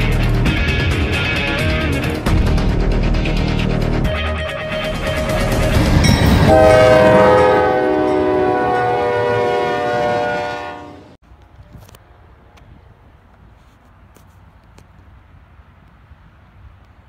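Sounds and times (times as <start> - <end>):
passing train rumble: 0.0 - 17.0
locomotive air horn chord: 4.1 - 11.2.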